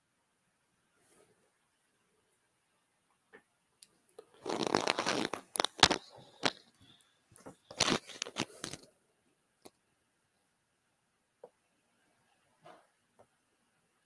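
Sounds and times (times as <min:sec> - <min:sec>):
rustling crunching handling noise: 0:04.2 - 0:08.9.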